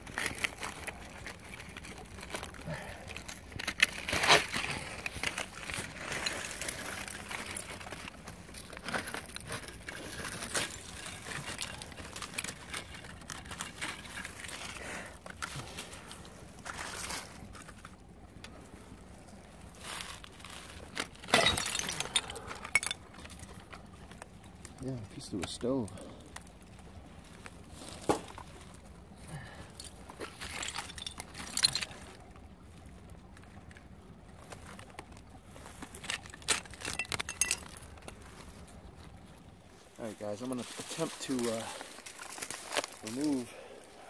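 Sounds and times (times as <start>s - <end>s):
hand digging through dirt and leaves: 0.0s - 18.2s, 19.0s - 21.4s, 34.4s - 44.0s
hands digging in soil and leaves: 19.4s - 21.2s, 37.8s - 44.0s.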